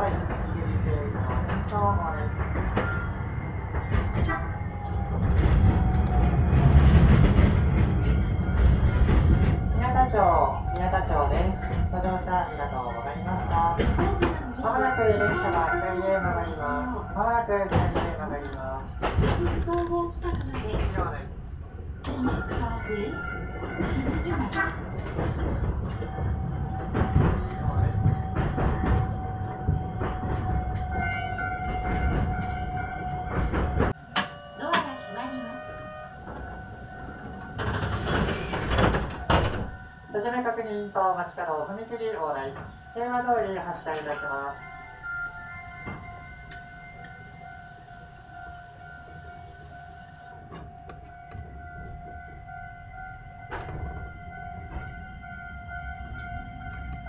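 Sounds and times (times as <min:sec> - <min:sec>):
clacks over rail joints: 0:00.0 - 0:12.3, 0:17.6 - 0:21.3, 0:22.0 - 0:34.9, 0:36.2 - 0:39.8
crossing warning bell: 0:00.0 - 0:57.0
train wheels rumbling: 0:00.0 - 0:57.0
train whine: 0:00.0 - 0:57.0.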